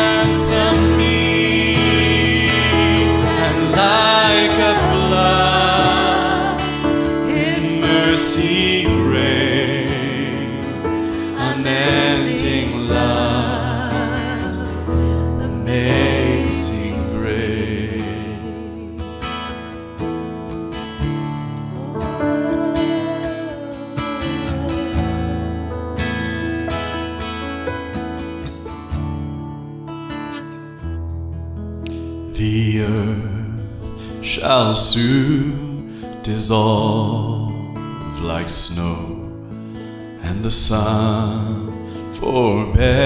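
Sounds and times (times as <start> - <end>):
acoustic guitar: 0.0 - 43.0
digital piano: 0.0 - 43.0
woman singing: 2.2 - 9.3, 10.9 - 16.1, 21.8 - 25.6.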